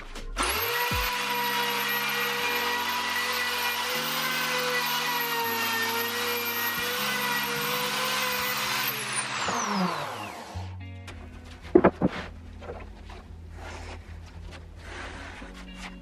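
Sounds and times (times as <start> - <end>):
background music with bass: 0.0 - 1.2, 10.6 - 16.0
router whining while cutting wood: 0.4 - 10.7.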